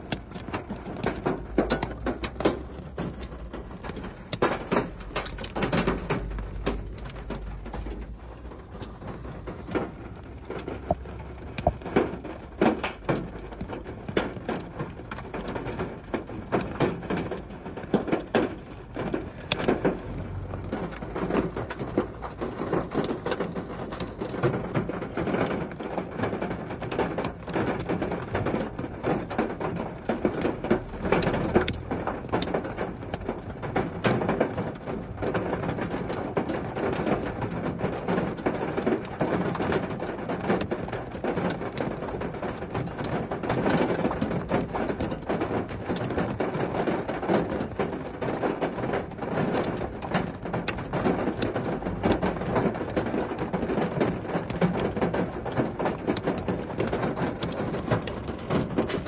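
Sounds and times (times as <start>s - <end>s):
hailstones striking hard surfaces: 0.0s - 59.0s.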